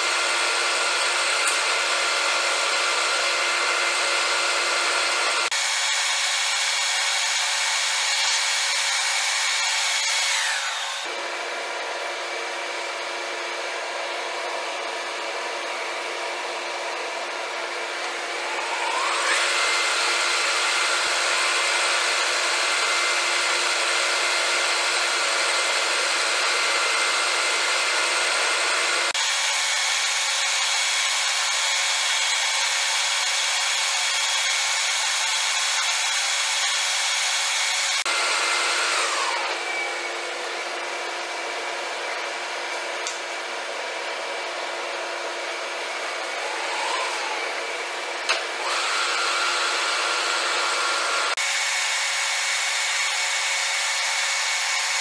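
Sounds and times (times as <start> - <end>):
drill drilling metal: 0.0 - 55.0
lathe spindle whine: 0.0 - 55.0.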